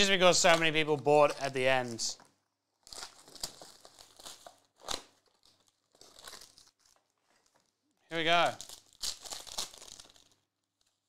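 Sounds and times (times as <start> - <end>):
foil pack crinkling and tearing: 2.8 - 11.0.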